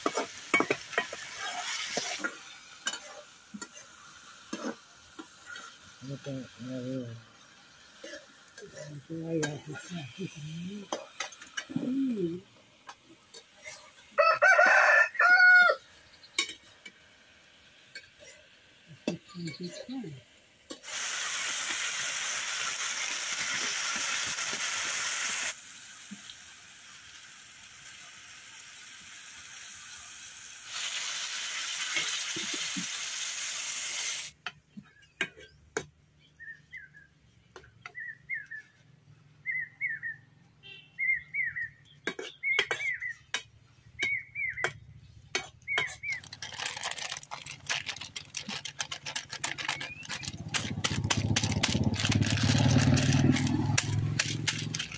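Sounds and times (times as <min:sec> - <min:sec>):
meat sizzling in a pan: 0:00.0 - 0:34.4
bird chirping: 0:34.8 - 0:38.8, 0:39.4 - 0:46.4, 0:49.6 - 0:50.5.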